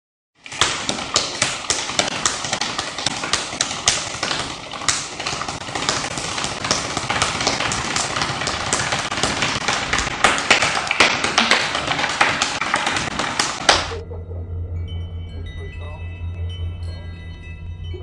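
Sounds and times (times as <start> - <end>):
sharp taps and knocks: 0.4 - 14.0.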